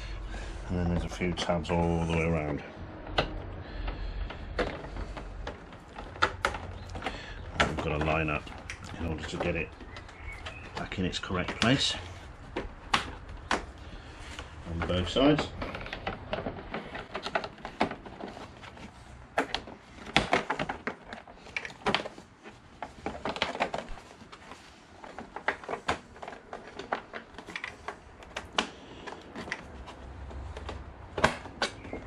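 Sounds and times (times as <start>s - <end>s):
plastic trim clicking and snapping: 2.2s - 11.8s, 12.5s - 18.8s.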